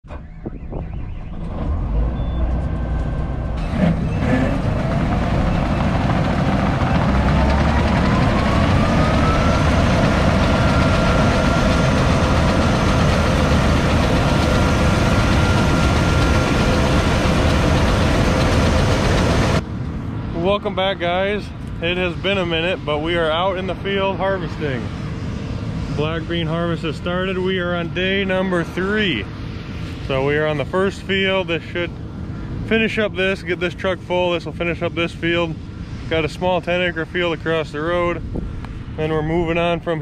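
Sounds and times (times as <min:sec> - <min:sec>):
machinery whine rising in pitch: 0:00.0 - 0:31.9
combine harvester running: 0:00.1 - 0:40.0.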